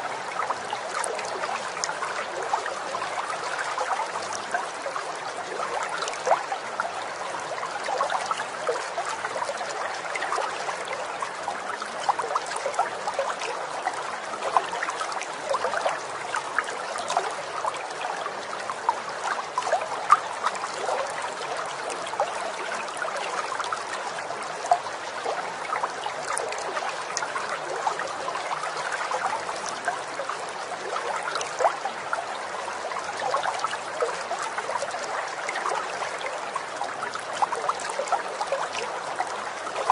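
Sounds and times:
stream babbling: 0.0s - 39.9s.

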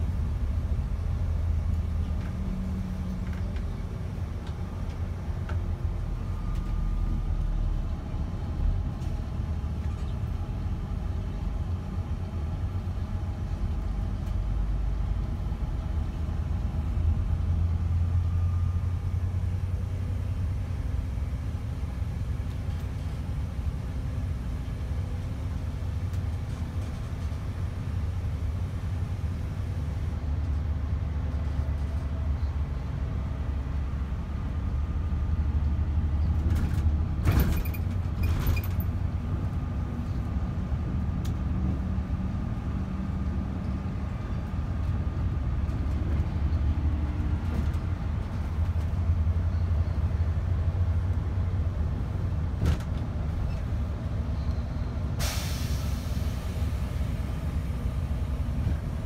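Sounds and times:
coach diesel engine and road noise: 0.0s - 59.0s.

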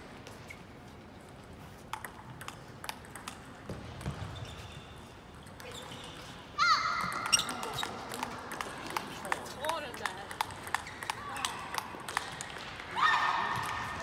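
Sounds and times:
ping pong ball clicking: 1.9s - 4.1s, 7.0s - 12.6s.

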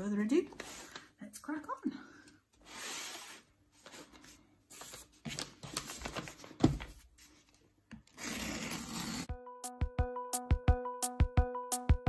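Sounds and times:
paper crinkling and rustling: 3.8s - 9.3s
paper ripping: 8.2s - 9.3s
background music: 9.1s - 12.0s.

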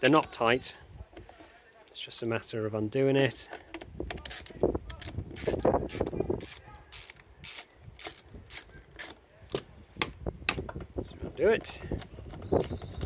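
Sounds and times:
ratchet driver clicking: 4.3s - 9.1s.

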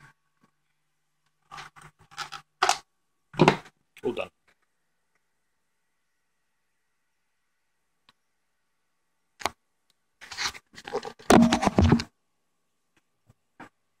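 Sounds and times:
rubbing and scraping on microphone: 10.2s - 12.1s.

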